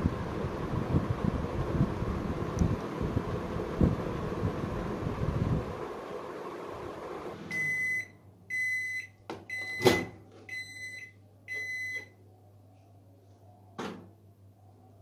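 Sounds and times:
microwave oven humming: 0:00.0 - 0:15.0.

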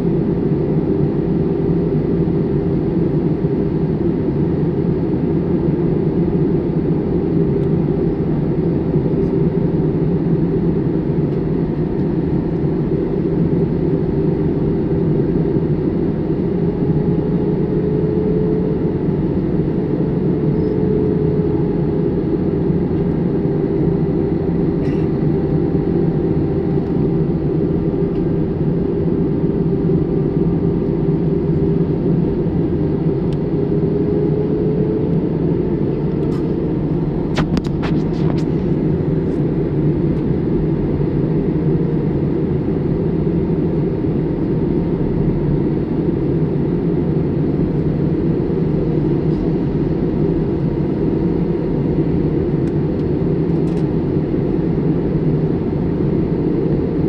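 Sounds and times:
airliner cabin engine drone: 0:00.0 - 0:57.0
faint held hum: 0:17.8 - 0:57.0.

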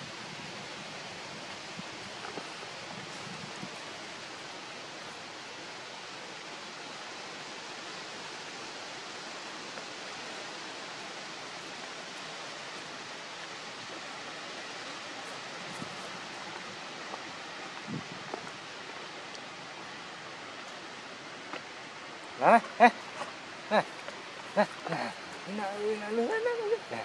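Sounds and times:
outdoor background hiss: 0:00.0 - 0:27.0.

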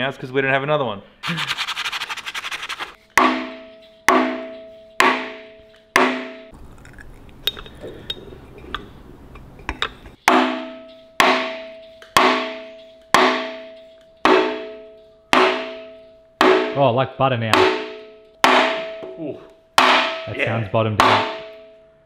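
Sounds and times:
mallet striking metal: 0:03.1 - 0:06.5, 0:09.7 - 0:16.9, 0:17.5 - 0:19.2, 0:19.8 - 0:21.8.

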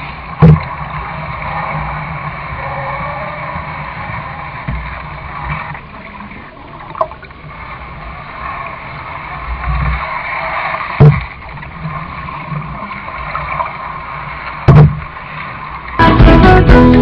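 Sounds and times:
paddle splashing water: 0:00.0 - 0:17.0
loud knock: 0:11.0 - 0:11.2, 0:14.7 - 0:15.0.

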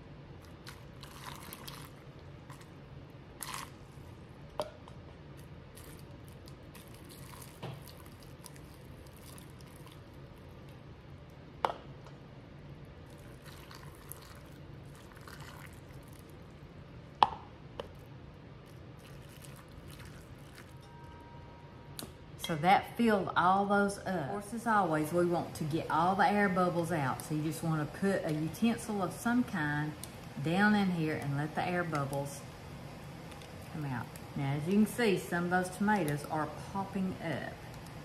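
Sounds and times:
liquid trickling into jars: 0:13.2 - 0:16.2, 0:19.0 - 0:20.8.

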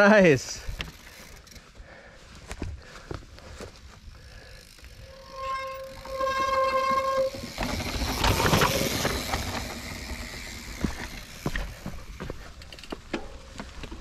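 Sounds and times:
bike rattling over rough trail: 0:00.6 - 0:14.0
bike disc brake squealing: 0:04.6 - 0:10.8
wheels and frame knocking: 0:05.0 - 0:14.0.

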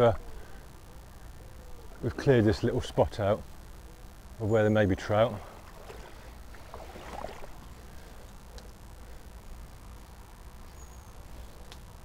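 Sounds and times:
river running over stones: 0:05.1 - 0:07.8
faint clicks: 0:11.6 - 0:11.9.

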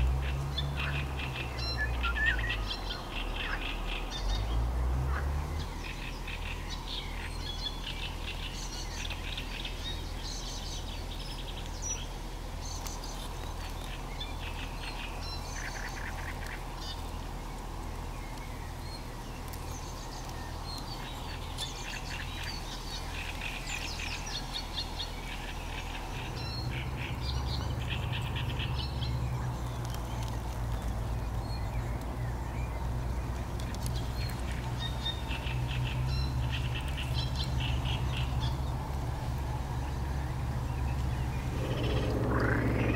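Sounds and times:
birds calling and chirping: 0:00.0 - 0:42.9
steady low hum: 0:39.6 - 0:42.9.

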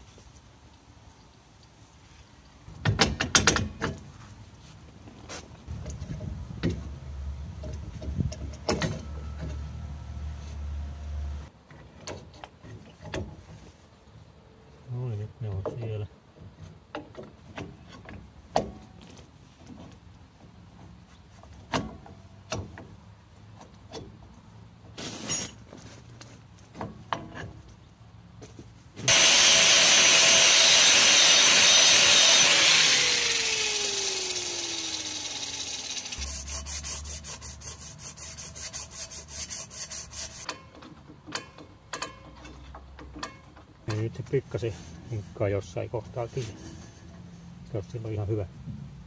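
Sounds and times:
loud rushing whir: 0:29.1 - 0:37.4.

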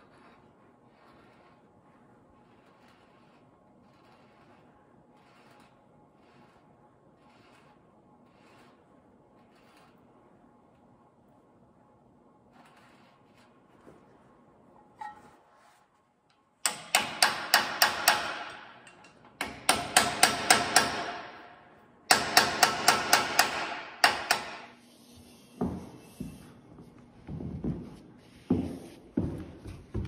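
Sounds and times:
hammer striking steel punch: 0:16.6 - 0:24.7.

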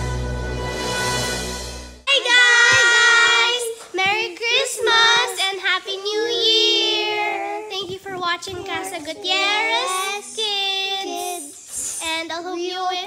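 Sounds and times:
children singing unaccompanied: 0:02.1 - 0:12.2.

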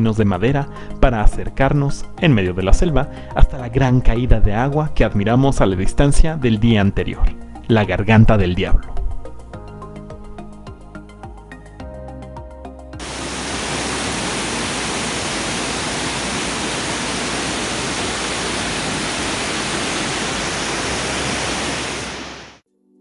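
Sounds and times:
background music: 0:00.0 - 0:16.3
waterfall rushing: 0:13.0 - 0:22.6.

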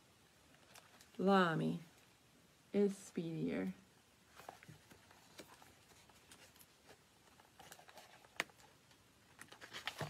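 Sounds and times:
fingers handling book pages: 0:04.3 - 0:10.0.

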